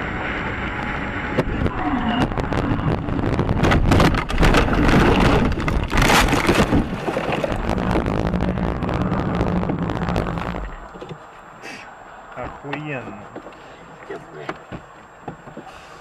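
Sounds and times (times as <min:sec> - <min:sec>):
steady hum: 0:00.0 - 0:16.0
dirt and gravel pattering: 0:02.2 - 0:11.5
car body jolting and rattling: 0:03.2 - 0:08.6.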